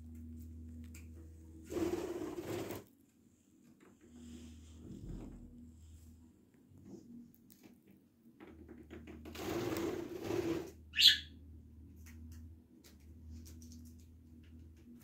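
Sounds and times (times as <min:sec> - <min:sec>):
budgerigar chirp: 0:11.0 - 0:11.3.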